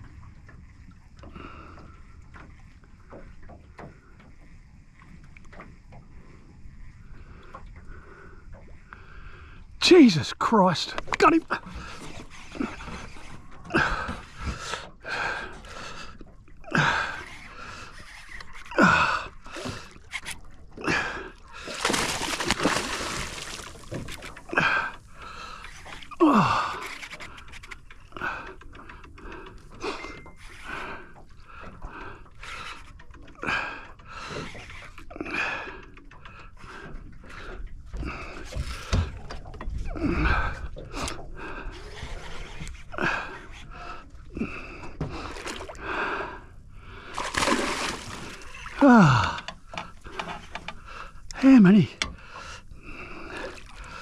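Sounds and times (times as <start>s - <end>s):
person breathing hard: 43.0s - 51.2s.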